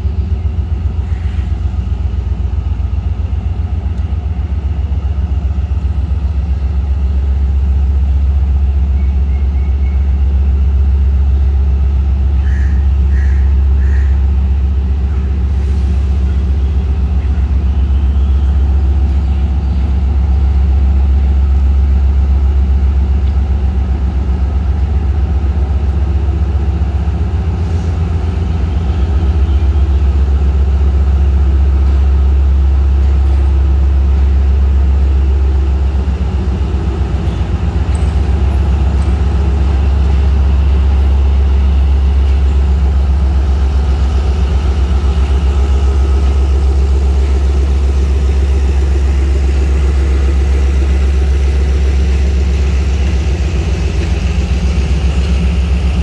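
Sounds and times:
diesel locomotive engine droning: 0.0 - 56.0.

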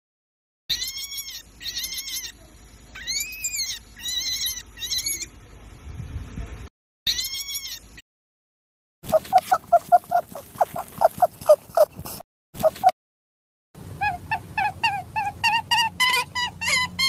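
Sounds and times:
rabbit squealing: 0.7 - 2.4, 3.0 - 5.3, 7.1 - 8.0, 9.1 - 13.0, 13.9 - 17.0.

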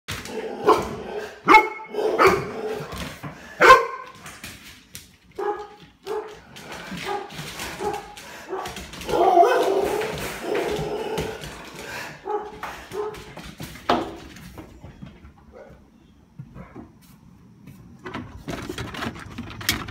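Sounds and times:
dogs barking: 0.3 - 2.9, 3.5 - 4.2, 5.4 - 13.4.

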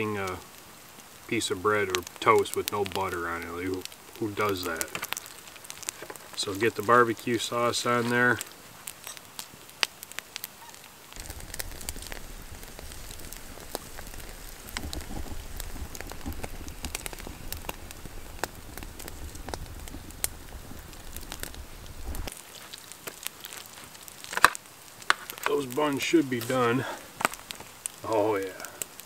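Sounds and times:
campfire crackling and popping: 0.0 - 29.0
low rumble: 11.2 - 22.3.

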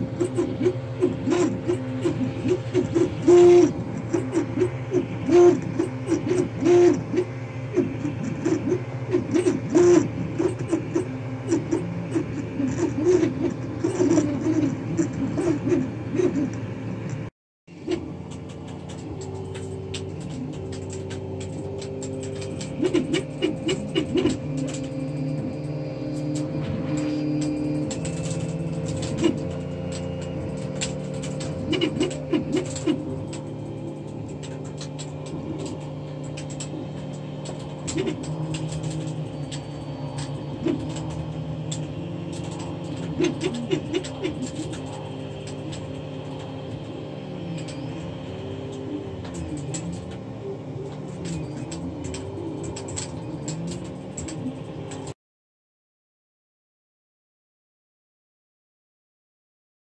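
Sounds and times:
fan hum: 0.0 - 55.2
stepper motors whining: 0.0 - 55.2
scattered ticks: 17.9 - 50.2, 50.8 - 55.1.

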